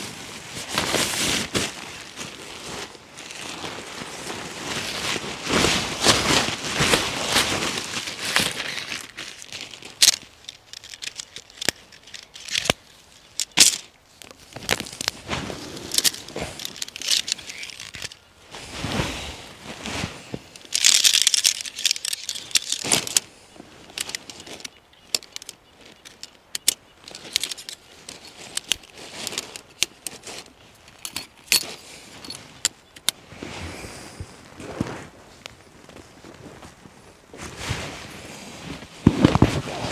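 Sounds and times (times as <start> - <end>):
fabric rustling: 0.0 - 12.4, 14.4 - 24.7, 27.0 - 39.9
gear clicking and rattling: 8.2 - 13.9, 15.8 - 18.2, 20.5 - 33.2.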